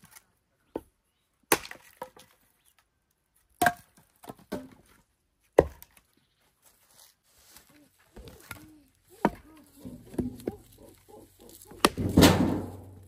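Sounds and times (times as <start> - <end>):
axe chopping firewood: 1.5 - 2.2, 3.6 - 4.9, 5.6 - 6.0, 8.2 - 10.7, 11.5 - 13.0.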